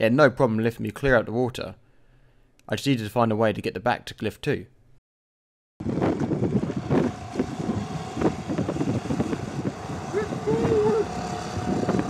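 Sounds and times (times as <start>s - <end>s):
outboard motor running: 5.8s - 12.0s
wind on microphone: 5.8s - 12.0s.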